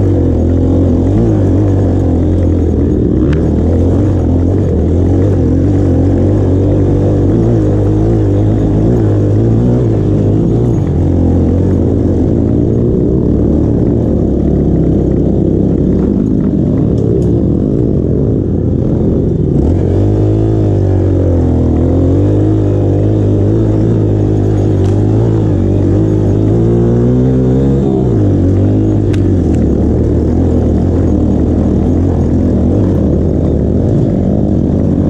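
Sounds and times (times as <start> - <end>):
dirt bike engine: 0.0 - 35.0.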